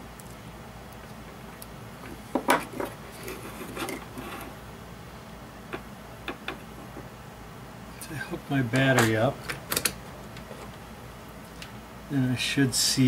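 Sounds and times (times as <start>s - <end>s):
objects knocking on wooden bench: 2.3s - 2.9s, 5.7s - 7.1s.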